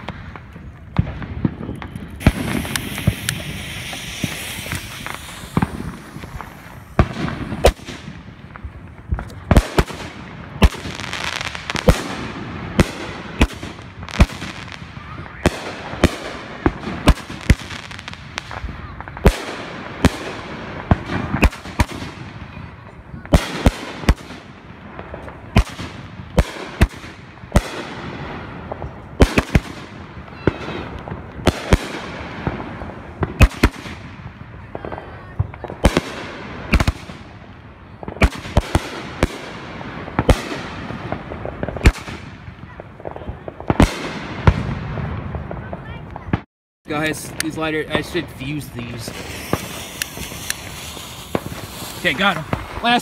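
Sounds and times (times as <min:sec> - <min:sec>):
continuous firework hiss: 0:00.0 - 0:53.0
firework bangs: 0:00.0 - 0:53.0.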